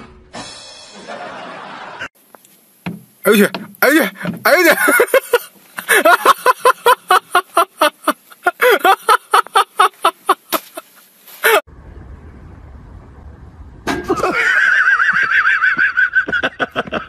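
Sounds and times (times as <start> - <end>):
low steady rumble: 11.7 - 14.4.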